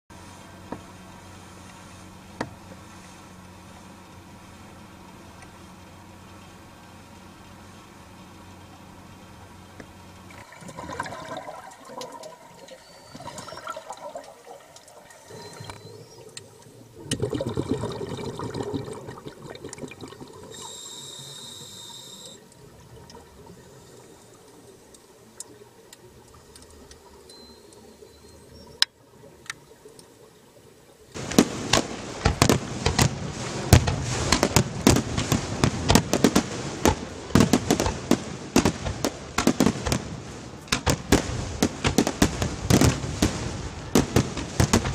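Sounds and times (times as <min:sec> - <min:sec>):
underwater regulator bubbling: 0:10.3 - 0:23.9
fireworks bangs and crackles: 0:31.2 - 0:44.9.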